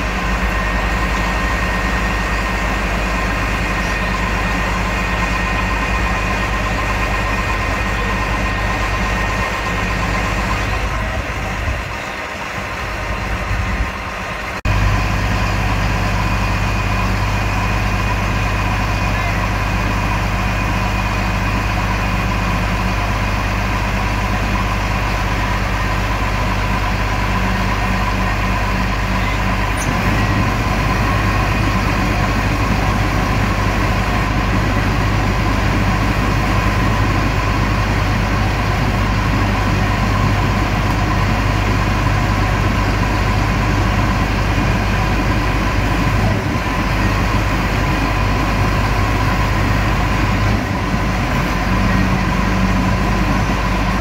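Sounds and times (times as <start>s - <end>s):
diesel engine running: 0.0s - 54.0s
winch whine: 0.0s - 54.0s.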